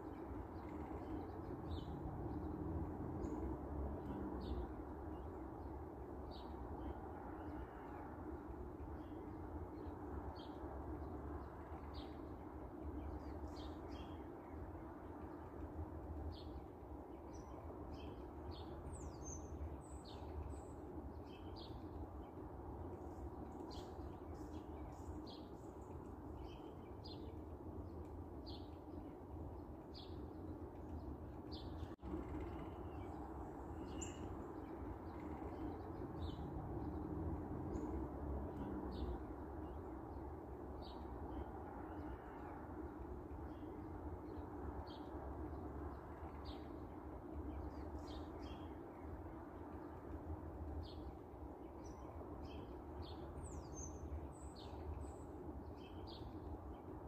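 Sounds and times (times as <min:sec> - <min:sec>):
small birds chirping: 0:08.9 - 0:37.1.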